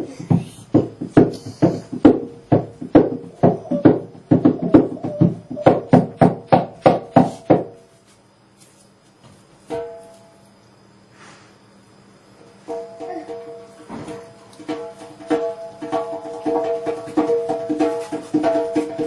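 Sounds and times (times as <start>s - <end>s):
sharp ringing percussive knocks: 0.3s - 7.8s, 9.7s - 10.5s, 12.5s - 19.0s.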